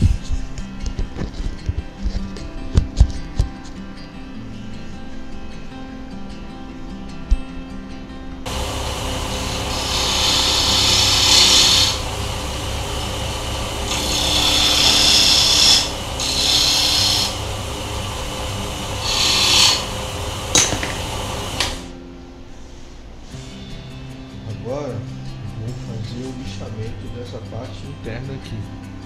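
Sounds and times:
chisel cutting spinning wood: 0:08.5 - 0:22.0
lathe motor hum: 0:08.5 - 0:22.0.

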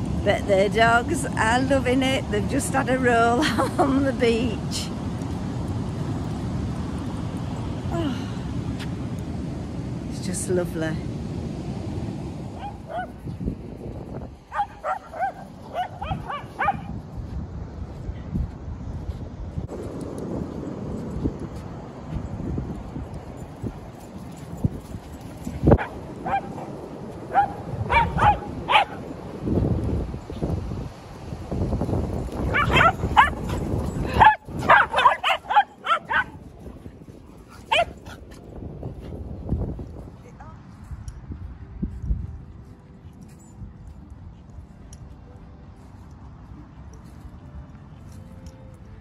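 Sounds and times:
dog yipping: 0:14.5 - 0:16.9, 0:27.3 - 0:29.0, 0:32.5 - 0:36.4.

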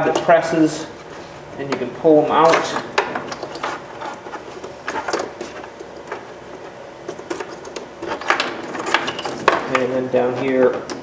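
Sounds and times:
door panel rustling: 0:01.7 - 0:10.0.

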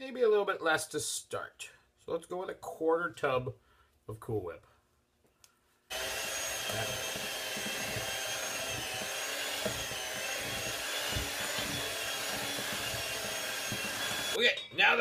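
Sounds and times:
electric mixer whipping cream: 0:05.9 - 0:14.4.

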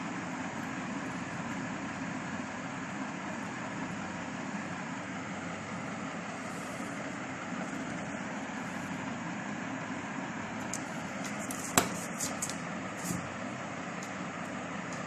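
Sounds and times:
sharp tap on table: 0:11.7 - 0:12.0.

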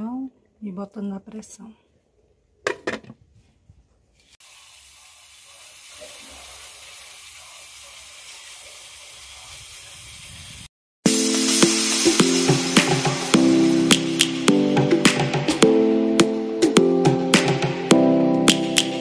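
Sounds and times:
steam hissing from pressure cooker: 0:04.4 - 0:13.9.

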